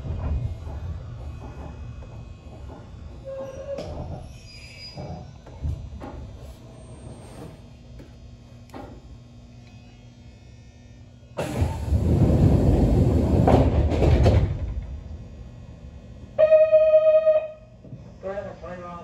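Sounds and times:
compressed air hiss: 11.4 - 13.4
single-pitched buzzer: 16.4 - 17.8.

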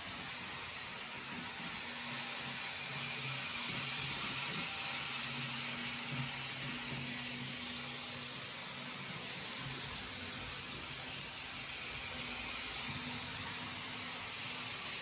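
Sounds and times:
model train wheels rolling on rails: 0.0 - 15.0.

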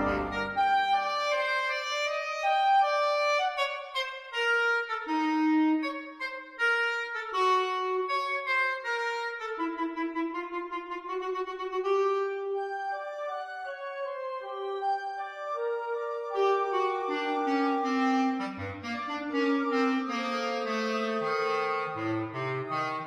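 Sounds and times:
single-note melody: 0.0 - 0.8.

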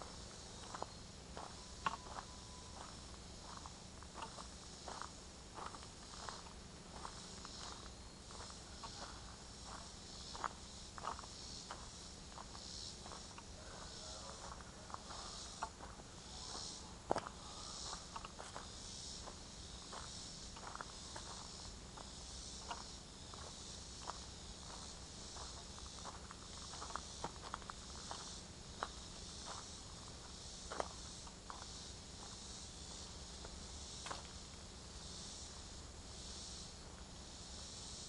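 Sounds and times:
high-pitched insect chorus: 0.0 - 38.0.

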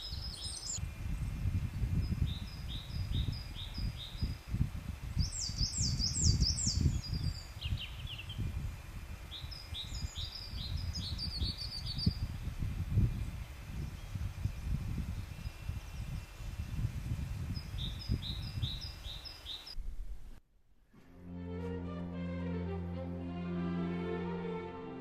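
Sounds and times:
songbirds chirping: 0.0 - 19.8
wind rumble on microphone: 0.0 - 20.4.

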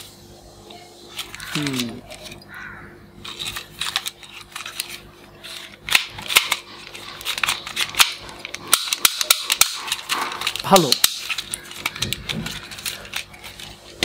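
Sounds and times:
plastic toy parts clicking: 3.2 - 14.0.

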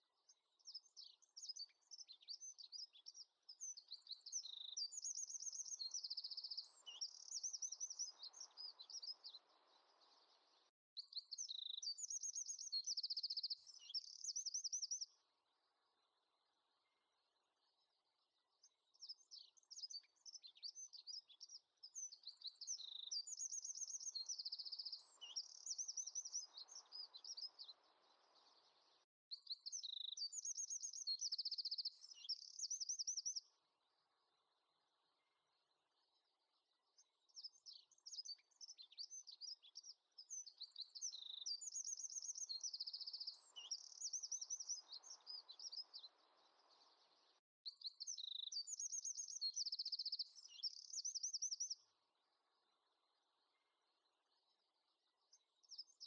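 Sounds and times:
songbird trilling and chirping: 0.3 - 15.2, 18.9 - 33.5, 36.5 - 53.5.

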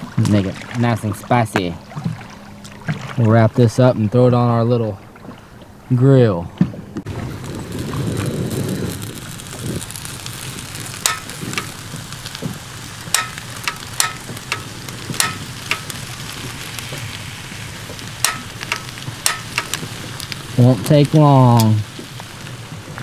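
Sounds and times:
gas hiss: 7.1 - 23.0
stove igniter clicks: 10.9 - 11.8, 13.0 - 16.0, 18.2 - 20.4.

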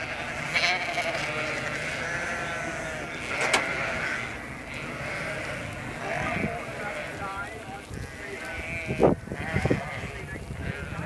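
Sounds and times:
sheep bleating: 0.0 - 11.0
sharp click: 3.3 - 3.8.

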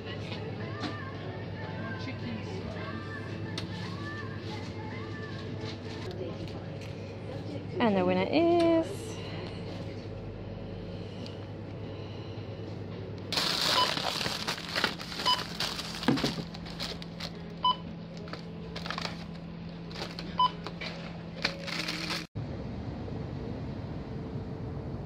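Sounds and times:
plastic packaging crinkling: 13.3 - 22.3
checkout scanner beeping: 13.4 - 16.1, 17.6 - 18.0, 20.2 - 20.7.

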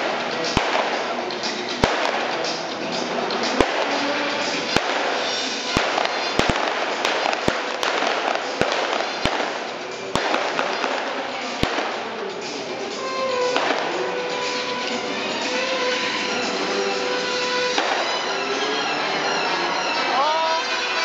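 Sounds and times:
pyrotechnic cracks and bangs: 0.0 - 12.2, 13.5 - 14.1, 17.4 - 18.6
music: 0.0 - 21.0.

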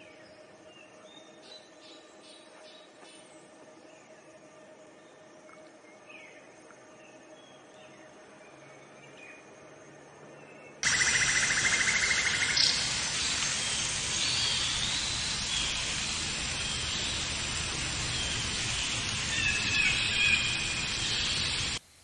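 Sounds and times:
birds calling: 10.8 - 21.8
fast bird trill: 10.8 - 21.8
steady hiss: 10.8 - 22.0.

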